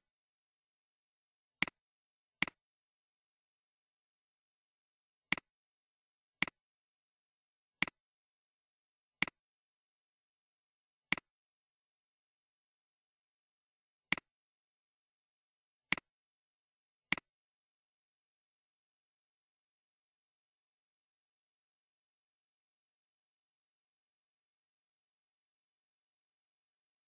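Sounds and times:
computer mouse clicks: 15.9 - 16.1, 17.1 - 17.3.

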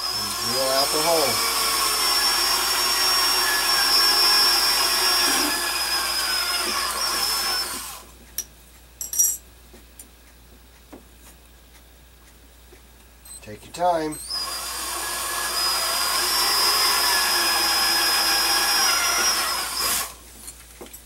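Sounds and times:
electric drill whining: 0.0 - 8.1, 14.3 - 20.2.

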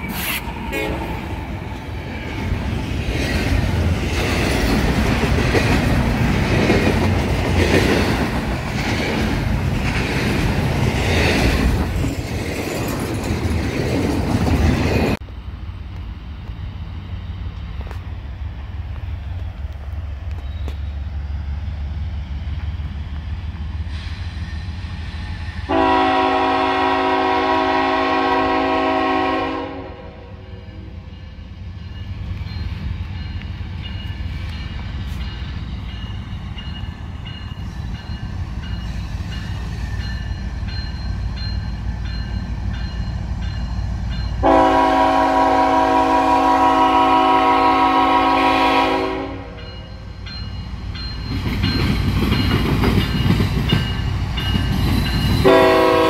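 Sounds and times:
locomotive engines rumbling: 0.0 - 56.0
multi-note train horn: 0.7 - 1.3, 25.7 - 31.0, 44.4 - 49.8, 55.4 - 56.0.

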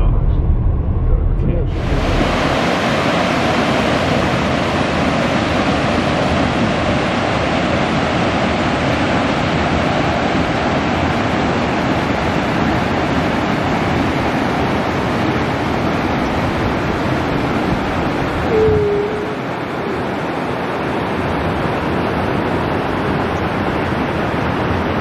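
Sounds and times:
waterfall rushing over rocks: 1.7 - 25.0
clear falling tone: 18.4 - 20.0.

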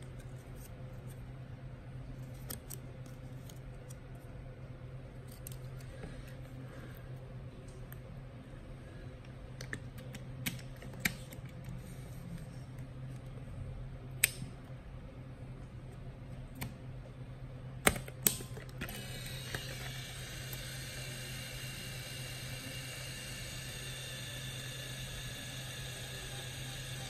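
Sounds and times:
film-winding motor whirring: 18.9 - 27.0.

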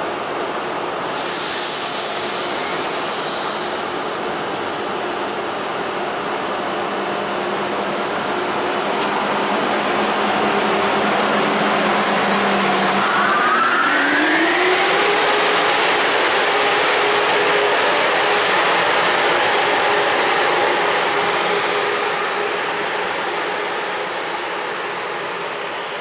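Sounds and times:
electric train traction whine: 8.5 - 25.9.

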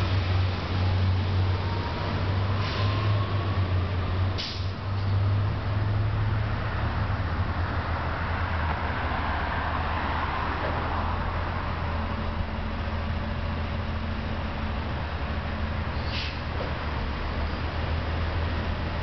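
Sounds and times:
bus engine idling: 0.0 - 19.0
hiss: 2.5 - 3.4, 4.4 - 5.1, 16.0 - 16.6.

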